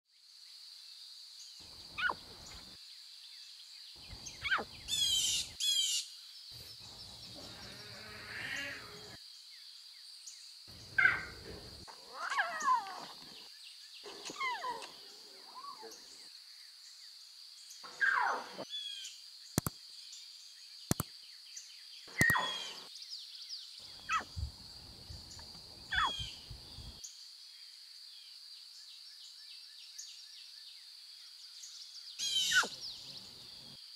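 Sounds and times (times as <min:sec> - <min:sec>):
bird calls and chirps: 0:01.4 - 0:24.5, 0:25.2 - 0:27.2, 0:28.8 - 0:33.4
sharp clicks: 0:19.6 - 0:19.8, 0:20.9 - 0:21.1, 0:22.1 - 0:22.4.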